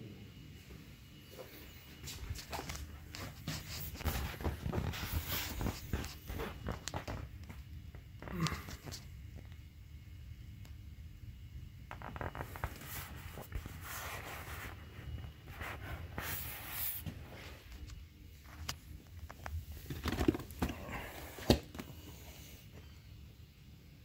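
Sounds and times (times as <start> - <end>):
vinyl pool toys rustling: 1.3 - 8.1, 11.9 - 22.8.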